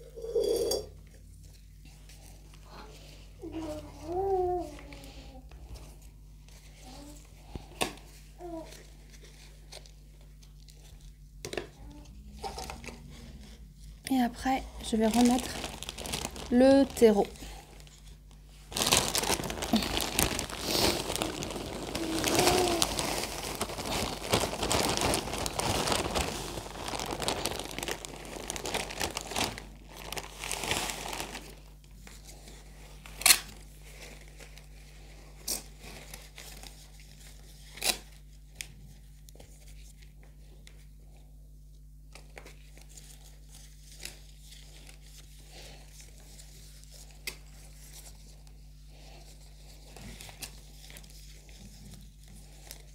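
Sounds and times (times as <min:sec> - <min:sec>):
plastic bag crinkling: 0:11.8 - 0:38.4, 0:42.4 - 0:52.9.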